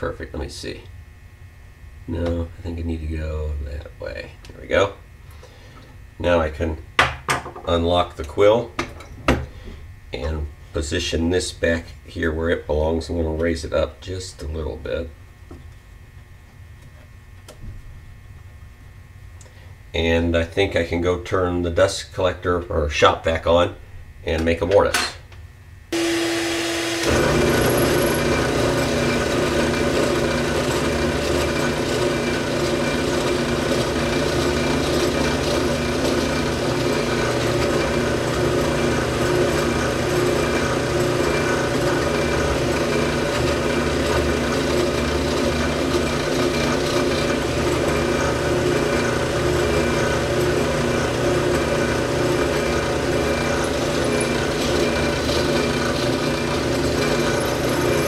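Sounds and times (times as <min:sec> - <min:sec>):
drill press running: 0:25.9 - 0:58.0
dust collection vacuum: 0:25.9 - 0:58.0.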